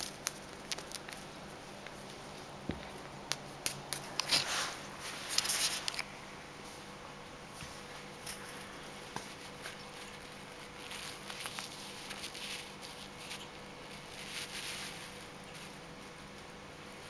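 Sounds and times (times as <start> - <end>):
feather and paws rustling on cork: 4.1 - 6.0, 7.6 - 17.0.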